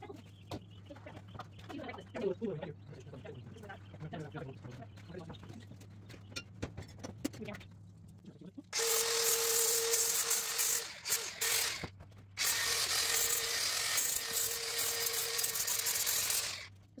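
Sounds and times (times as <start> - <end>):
power tool whining on wire: 8.8 - 16.8.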